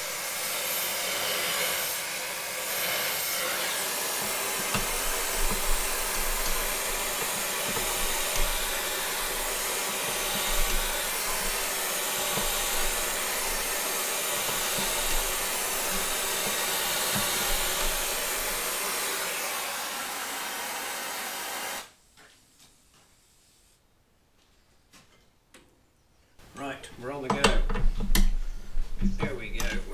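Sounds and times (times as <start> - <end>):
gas torch hissing: 0.0 - 22.0.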